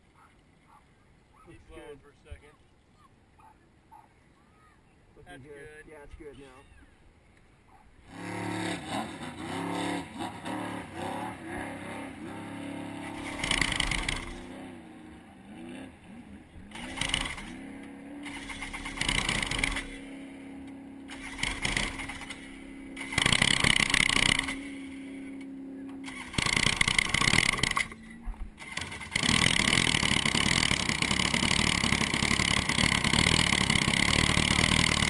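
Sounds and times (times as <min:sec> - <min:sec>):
jet ski engine revving and idling: 0:08.1 - 0:35.0.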